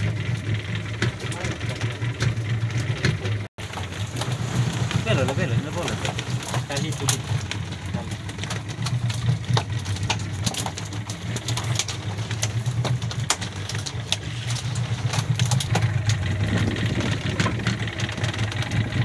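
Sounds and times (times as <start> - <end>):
boat engine idling: 0.0 - 19.0
clicks and knocks of fish trap: 5.8 - 16.2.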